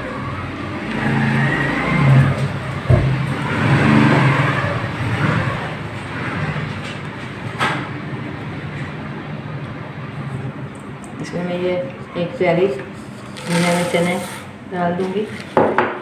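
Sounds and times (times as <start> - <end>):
vehicle engine passing: 0.0 - 10.6.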